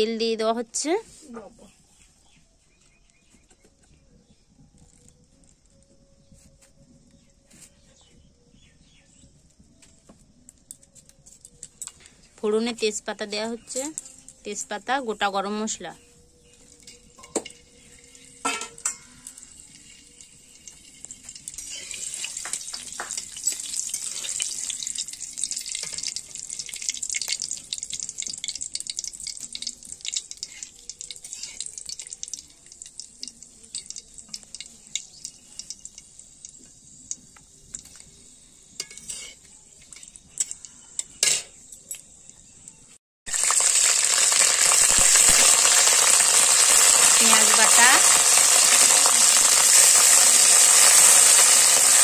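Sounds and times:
spices sizzling in hot oil: 10.5s - 52.0s
metal spatula scraping: 16.4s - 20.2s, 20.8s - 24.9s, 29.4s - 32.4s, 37.7s - 41.8s.

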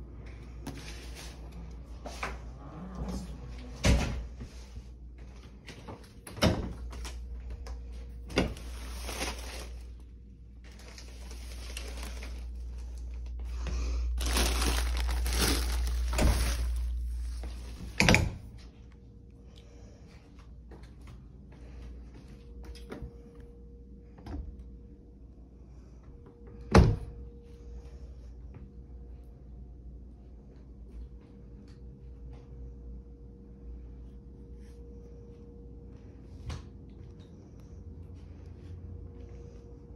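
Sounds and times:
doors opening and shutting: 2.1s - 4.5s, 17.7s - 18.6s.

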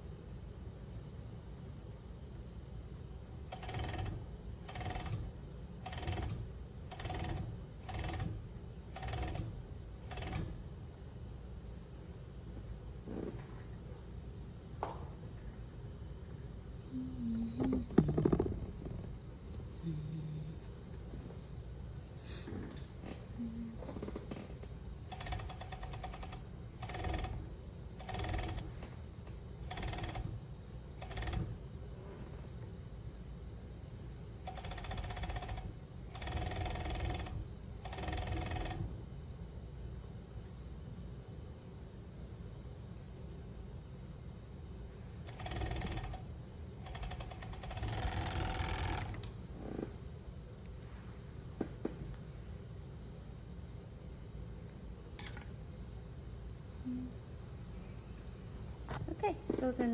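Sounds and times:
steady low hum: 0.0s - 59.9s
sewing machine clattering: 3.5s - 5.2s, 10.1s - 10.6s, 25.1s - 27.4s, 28.0s - 28.6s, 45.3s - 46.2s, 46.9s - 49.3s
sewing machine whir-clatter: 3.5s - 10.6s, 25.1s - 27.4s, 28.0s - 28.8s, 29.6s - 30.4s, 31.0s - 31.6s, 34.4s - 38.9s, 45.2s - 49.3s.

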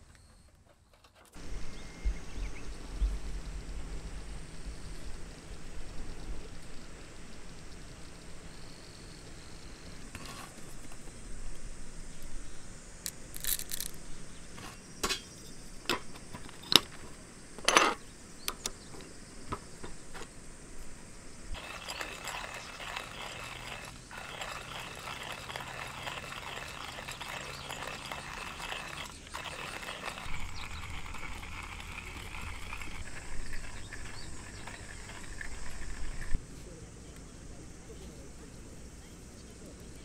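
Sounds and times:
hand grinder grinding beans: 13.1s - 14.0s, 21.6s - 36.4s
coffee beans rattling: 13.1s - 14.2s, 21.6s - 36.4s.

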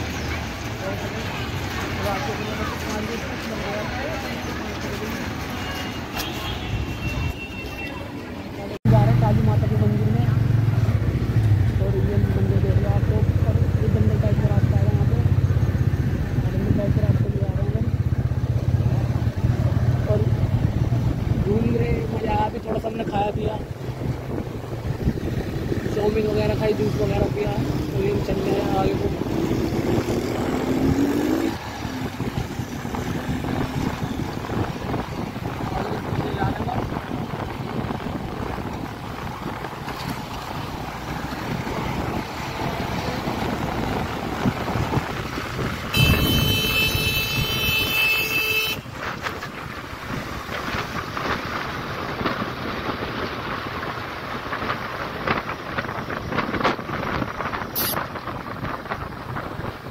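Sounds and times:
road rumble: 0.0s - 59.9s
wind buffeting microphone: 15.6s - 48.0s, 48.8s - 59.9s.

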